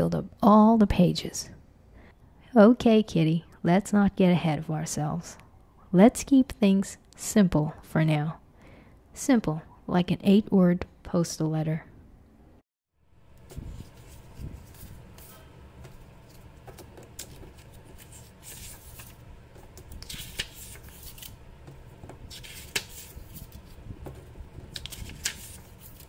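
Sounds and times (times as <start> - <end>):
paper flicks: 13.4 - 26.0
paper sheets rustling: 13.4 - 26.0.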